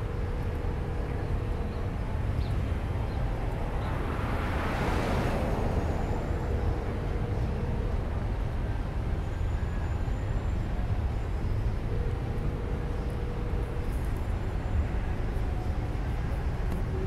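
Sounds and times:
wind and road rumble: 0.0s - 17.0s
car passing close: 3.7s - 7.7s.

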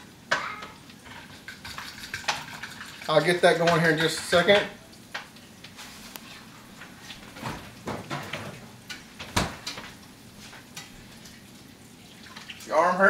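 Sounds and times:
kitchen items knocking and clattering: 0.3s - 4.8s, 7.3s - 10.0s.

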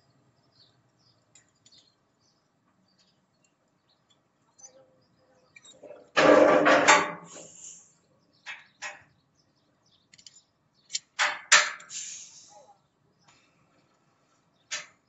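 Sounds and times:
steel clanking and scraping: 5.7s - 7.7s
sharp clicks: 10.1s - 12.0s.

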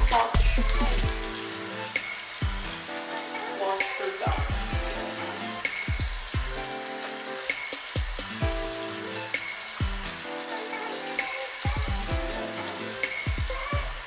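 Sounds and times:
looping bass and synth notes: 0.0s - 1.3s
steady hiss: 0.0s - 14.0s.

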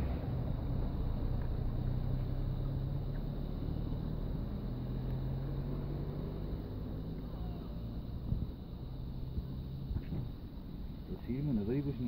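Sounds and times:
engine rumbling: 0.0s - 12.0s.

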